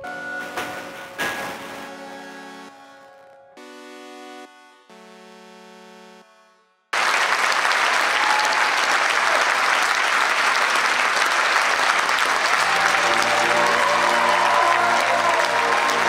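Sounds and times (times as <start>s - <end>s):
sustained chord: 0.0s - 6.8s
audience applauding: 7.0s - 16.0s.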